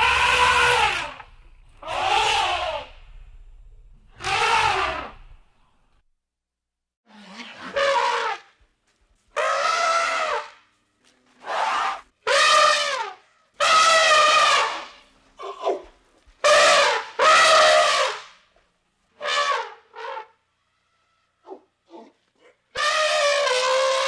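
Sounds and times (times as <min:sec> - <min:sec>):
elephant trumpeting: 0:00.0 - 0:01.2, 0:01.8 - 0:03.0, 0:04.2 - 0:05.2, 0:09.4 - 0:10.5, 0:11.4 - 0:15.0, 0:22.7 - 0:24.0.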